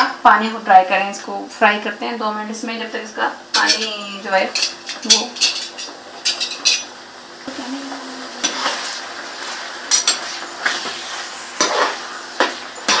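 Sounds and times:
meat sizzling in oil: 5.6s - 13.0s
metal utensil scraping a frying pan: 9.4s - 12.1s, 12.8s - 13.0s.

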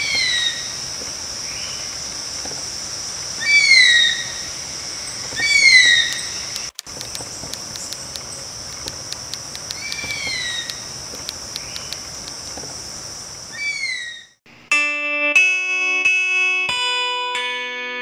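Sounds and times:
gliding bird calls: 0.0s - 2.1s, 3.4s - 12.3s, 13.5s - 14.4s
plucked guitar music: 14.7s - 18.0s.

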